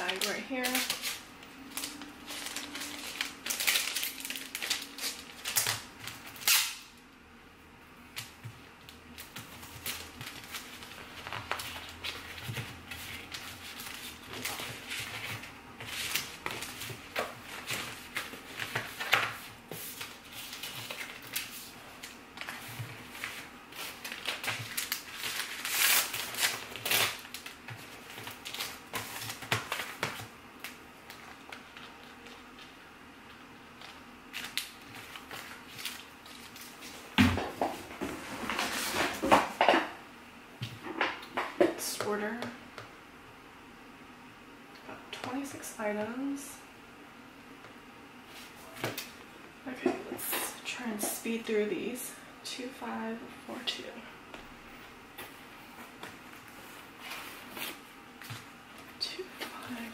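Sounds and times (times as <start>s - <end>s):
plastic bag crinkling: 0.0s - 6.5s, 20.0s - 32.8s.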